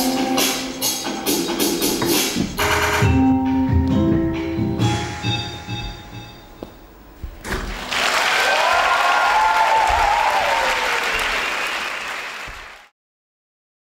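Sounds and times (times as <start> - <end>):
audience applauding and cheering: 7.7 - 12.9
long falling whoop: 8.4 - 11.3.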